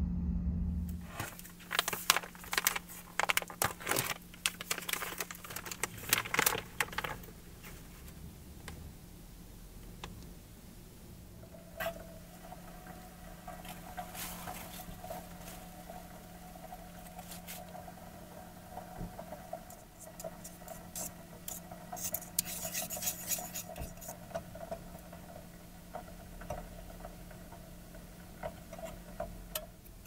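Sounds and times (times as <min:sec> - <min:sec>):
steady low hum: 0:00.0 - 0:30.0
metal spoon scraping plastic tub: 0:19.7 - 0:24.2.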